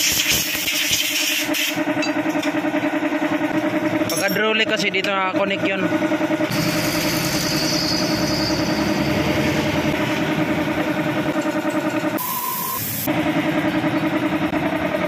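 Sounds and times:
small engine idling: 0:04.7 - 0:15.0.

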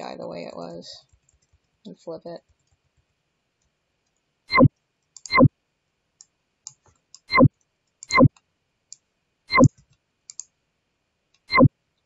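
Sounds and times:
computer mouse clicking: 0:01.1 - 0:01.6, 0:05.2 - 0:05.4, 0:06.2 - 0:10.5
faint small ticks: 0:05.0 - 0:05.4, 0:06.2 - 0:10.5.

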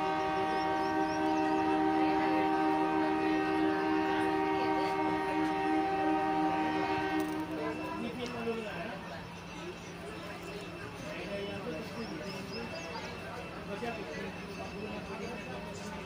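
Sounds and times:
train horn blast: 0:00.0 - 0:08.0.

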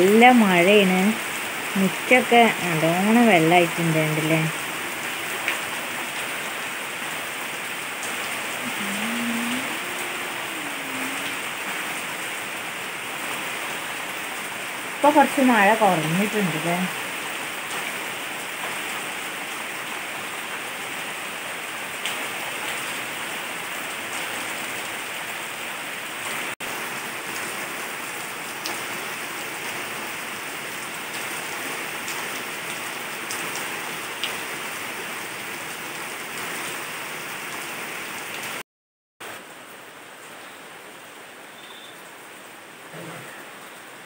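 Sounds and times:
heavy rain on ground and foliage: 0:00.0 - 0:38.6, 0:39.2 - 0:44.0.

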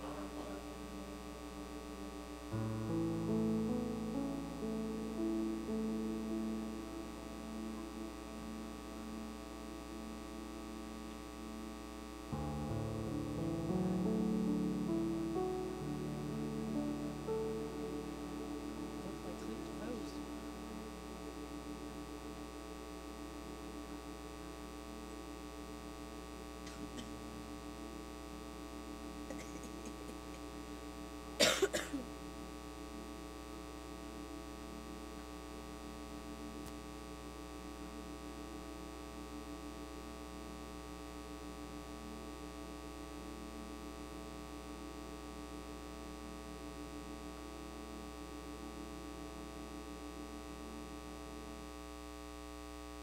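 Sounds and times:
electrical hum: 0:00.0 - 0:53.0
person coughing: 0:29.3 - 0:30.4, 0:31.4 - 0:32.1.

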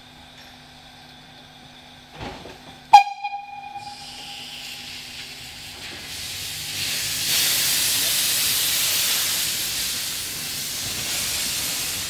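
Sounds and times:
short loud ringing note: 0:02.9 - 0:04.6
steam hissing from drain cocks: 0:03.7 - 0:12.0.

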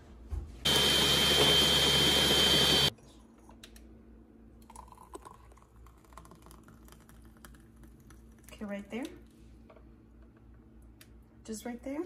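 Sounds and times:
blender running: 0:00.7 - 0:02.9.

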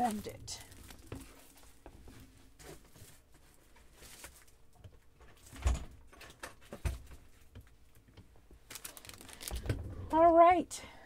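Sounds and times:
faint handling noises: 0:00.0 - 0:05.5.

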